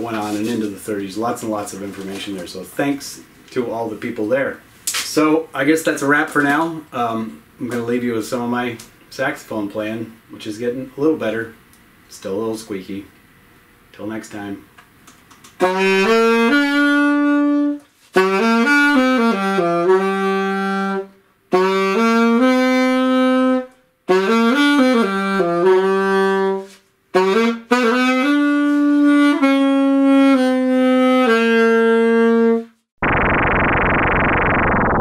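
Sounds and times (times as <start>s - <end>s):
saxophone solo: 15.6s - 34.4s
steady synthesizer tone: 33.0s - 35.0s.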